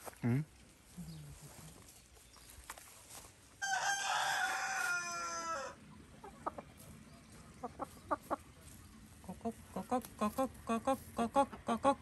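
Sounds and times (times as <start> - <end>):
rooster crowing: 3.6 - 5.8
chickens clucking: 4.4 - 12.0.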